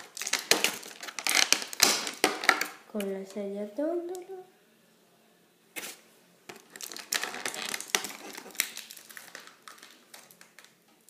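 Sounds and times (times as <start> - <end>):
packaging crinkling: 0.0 - 2.8, 5.8 - 10.8.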